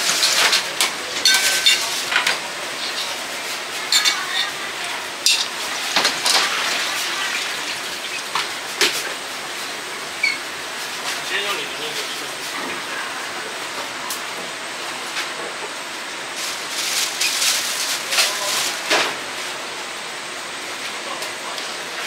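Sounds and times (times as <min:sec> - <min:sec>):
utensils and dishes clinking: 0:00.0 - 0:03.3, 0:03.9 - 0:04.5, 0:05.2 - 0:06.7.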